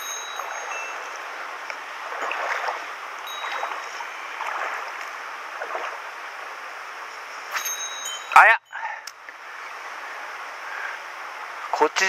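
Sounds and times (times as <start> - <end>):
feet wading through water: 0.0 - 6.7
stream rushing over stones: 0.0 - 8.5.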